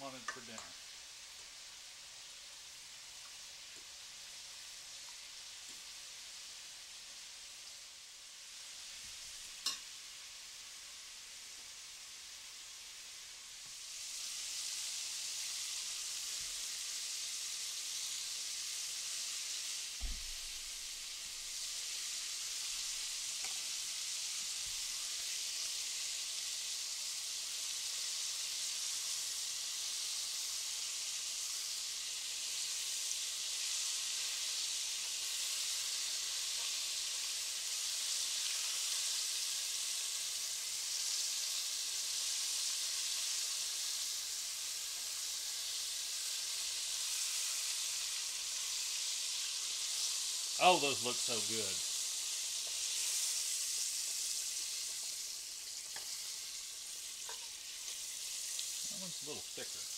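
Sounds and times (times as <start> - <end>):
chicken deep-frying in oil: 0.0 - 59.9
low thump: 20.0 - 20.4.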